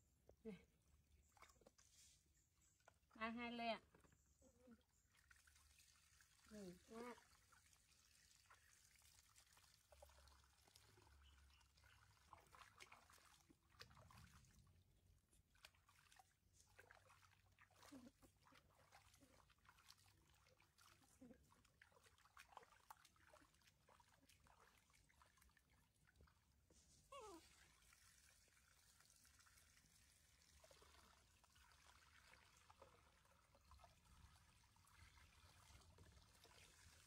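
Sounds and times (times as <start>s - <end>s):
small water splashes: 1.1s - 3.1s, 3.8s - 37.0s
water trickling: 1.2s - 37.0s.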